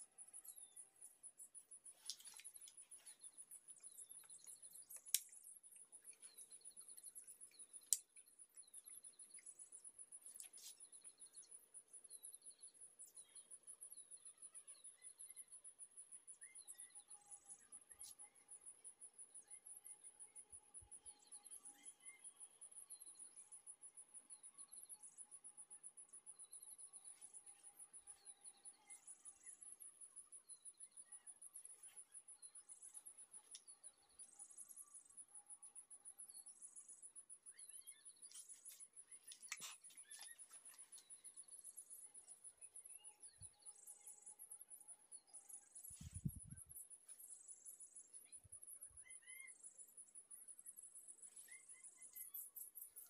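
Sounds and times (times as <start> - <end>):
insects trilling: 0.0 - 53.0.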